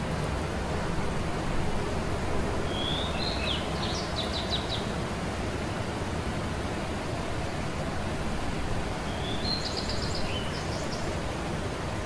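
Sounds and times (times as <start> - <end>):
low background noise: 0.0 - 12.0
songbird singing: 2.6 - 4.9, 9.0 - 11.2.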